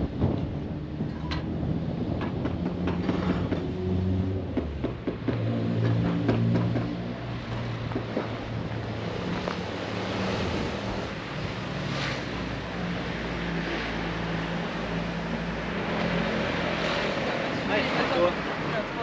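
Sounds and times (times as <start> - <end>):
wind noise on microphone: 0.0 - 13.7.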